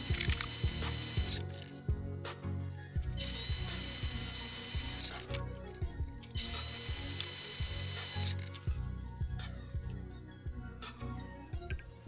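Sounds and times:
music with steady beat: 0:00.0 - 0:12.0.

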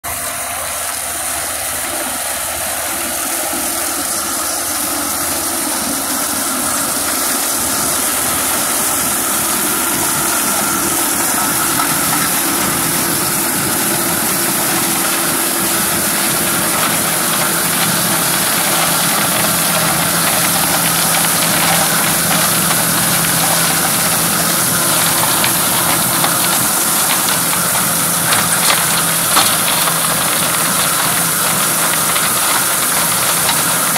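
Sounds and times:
tractor diesel engine running: 0:00.0 - 0:33.9
flail shredder chopping stubble: 0:08.2 - 0:33.9.

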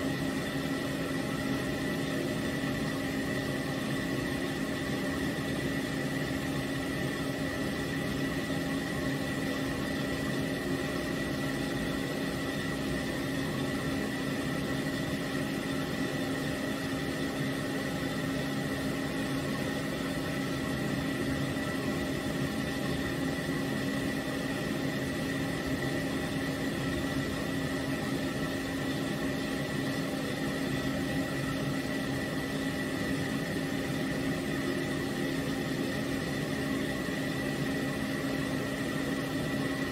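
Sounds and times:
pet dryer blowing air: 0:00.0 - 0:39.9.

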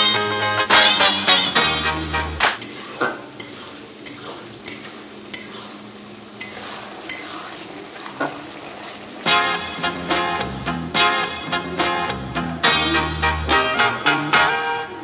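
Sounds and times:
background music: 0:00.0 - 0:02.6, 0:09.2 - 0:15.0
faint sizzle: 0:00.0 - 0:15.0.

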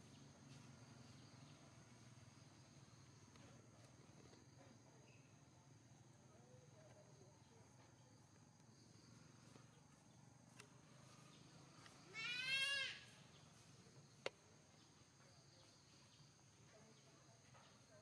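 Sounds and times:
monkey bleating cry: 0:12.1 - 0:13.1.

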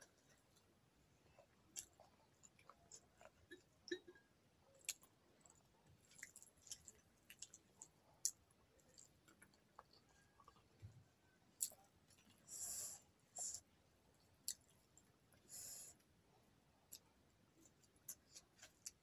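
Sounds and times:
chewing with wet mouth clicks: 0:01.4 - 0:04.0, 0:04.8 - 0:10.7, 0:14.4 - 0:15.1.

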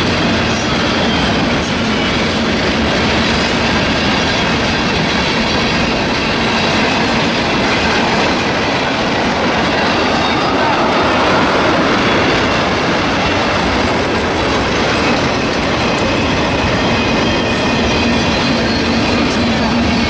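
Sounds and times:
freight train wheels on rail: 0:00.0 - 0:20.0.

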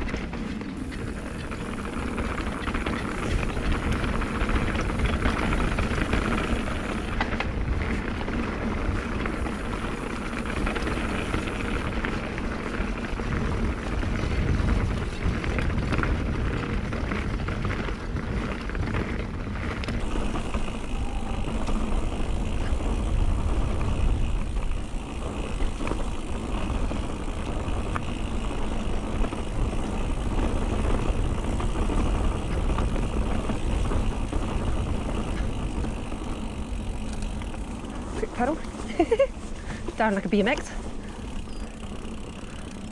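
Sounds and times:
tyres rumbling on dirt and stones: 0:00.0 - 0:42.9
wind on microphone: 0:12.8 - 0:40.0.

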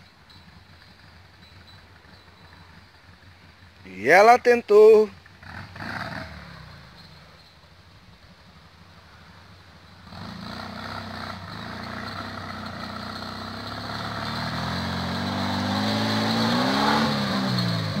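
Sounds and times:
buggy engine revving hard: 0:05.3 - 0:07.0, 0:10.0 - 0:18.0.

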